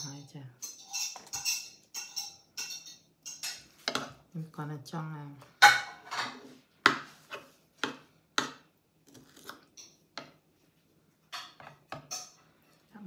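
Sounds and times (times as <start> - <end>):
metal spoon clinking on skillet: 0.0 - 4.1, 11.3 - 12.8.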